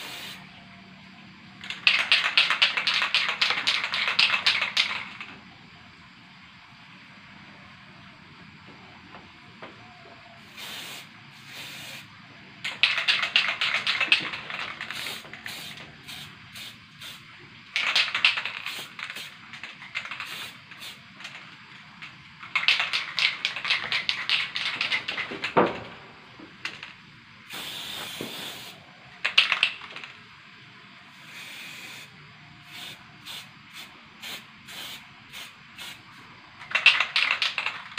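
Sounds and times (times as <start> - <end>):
spray paint can hissing: 0.0 - 0.5, 1.6 - 5.3, 10.5 - 25.7, 26.6 - 30.1, 31.1 - 37.9.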